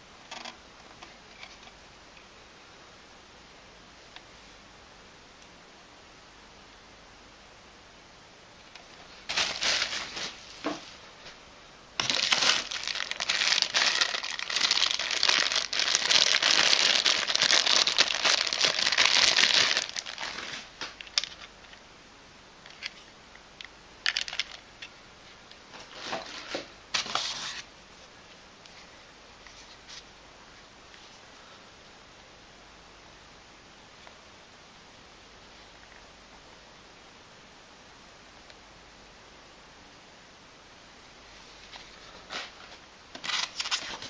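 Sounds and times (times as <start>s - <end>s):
plastic packaging crinkling: 9.0s - 10.4s, 12.0s - 21.5s, 24.1s - 24.6s, 41.9s - 44.0s.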